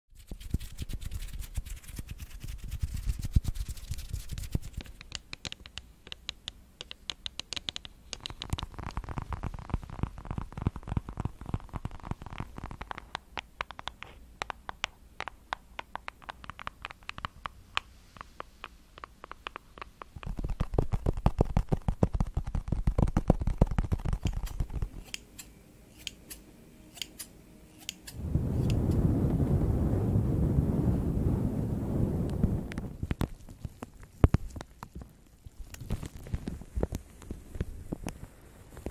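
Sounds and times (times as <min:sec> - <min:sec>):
scratching and rubbing: 0:00.2 - 0:05.1, 0:08.1 - 0:13.2, 0:18.1 - 0:26.4
scissors snipping hair: 0:24.2 - 0:28.8.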